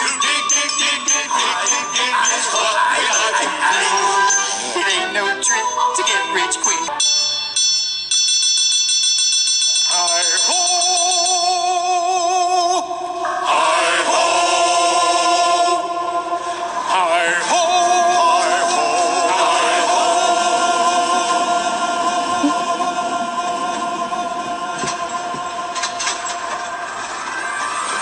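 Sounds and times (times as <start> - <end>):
group of voices singing: 0.0 - 5.7, 12.6 - 26.7.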